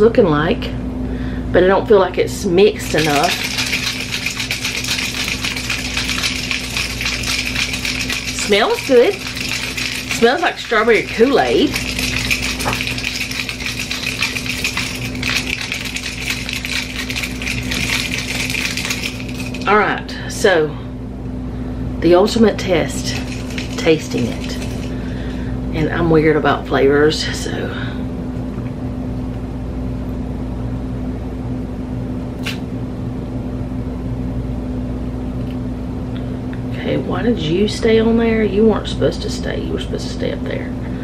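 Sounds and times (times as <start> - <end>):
machine humming: 2.7 - 19.9
shaker bottle with ice rattling: 2.7 - 19.9, 22.7 - 25.3
sharp click: 32.4 - 32.6.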